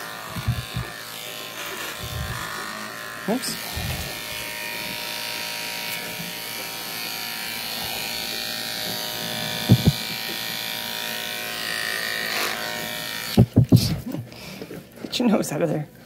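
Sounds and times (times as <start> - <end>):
electric clipper buzzing: 0.0 - 13.9
short thumps: 9.6 - 10.1.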